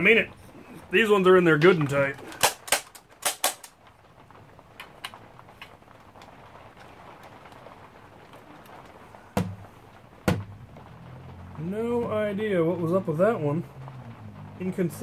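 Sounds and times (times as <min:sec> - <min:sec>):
loud plastic clacks: 0:01.8 - 0:03.9
toy blaster plastic clicks: 0:02.3 - 0:03.7.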